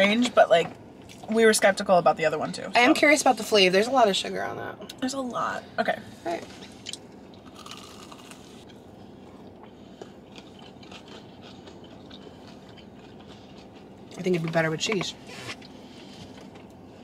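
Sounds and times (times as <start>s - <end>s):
person chewing crunchy food: 6.8s - 14.5s.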